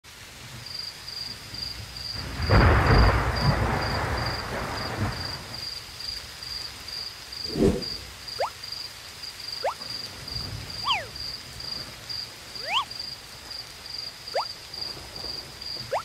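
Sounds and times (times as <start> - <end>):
rain hiss: 0.0 - 16.0
high insect chirp: 0.6 - 16.0
thunder rumbling: 1.3 - 5.7, 10.0 - 16.0.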